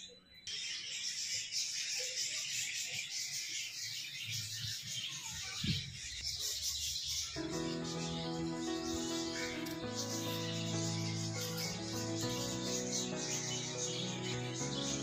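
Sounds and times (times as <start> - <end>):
shrill insect chorus: 7.4 - 15.0.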